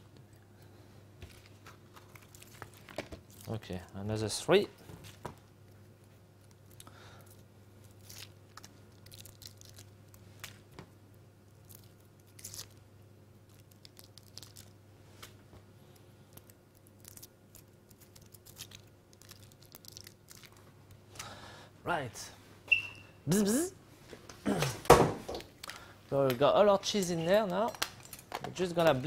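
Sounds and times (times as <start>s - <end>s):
steady low hum: 0.0s - 29.0s
foil wrappers crinkling and tearing: 1.3s - 4.1s, 6.4s - 10.6s, 11.6s - 14.8s, 16.3s - 20.7s.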